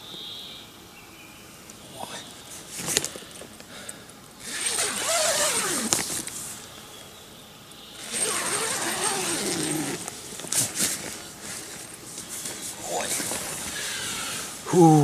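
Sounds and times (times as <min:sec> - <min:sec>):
tent zipper pulled: 0:04.4 - 0:06.3, 0:08.0 - 0:11.9, 0:13.0 - 0:14.6.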